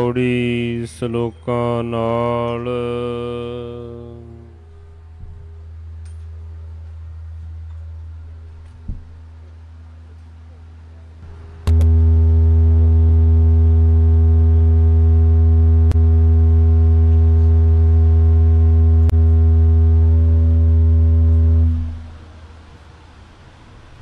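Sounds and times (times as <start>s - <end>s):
faint clicks: 11.7s - 12.1s
loud low drone: 11.7s - 22.3s.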